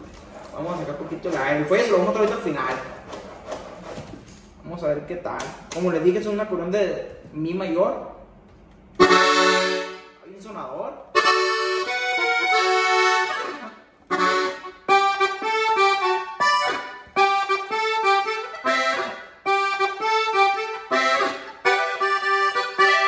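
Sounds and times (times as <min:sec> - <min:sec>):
button accordion playing: 0:09.0 - 0:10.2, 0:11.1 - 0:23.0.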